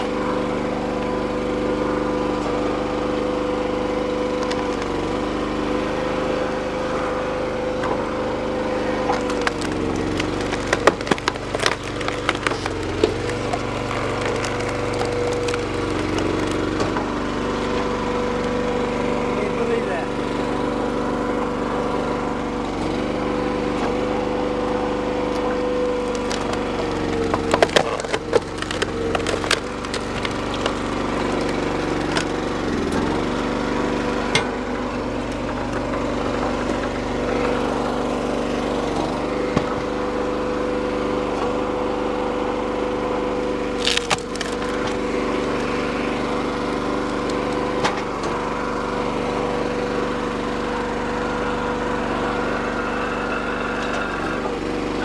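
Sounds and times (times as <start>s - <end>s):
log splitter engine running: 0.0s - 55.0s
wood cracking and splintering: 2.3s - 5.8s, 7.7s - 20.4s, 22.8s - 41.9s, 42.6s - 49.9s.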